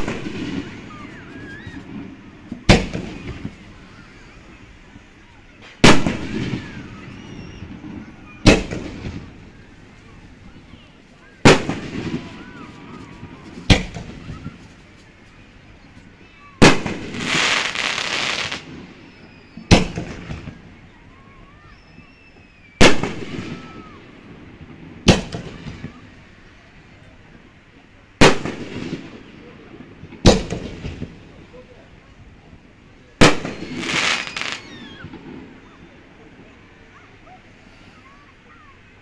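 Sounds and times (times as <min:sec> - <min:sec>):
firework shells booming: 0:00.0 - 0:03.9, 0:05.7 - 0:10.4, 0:11.4 - 0:14.7, 0:16.6 - 0:20.7, 0:22.8 - 0:26.0, 0:28.2 - 0:31.2, 0:33.2 - 0:35.4
loud hiss: 0:00.0 - 0:20.8, 0:33.2 - 0:35.4.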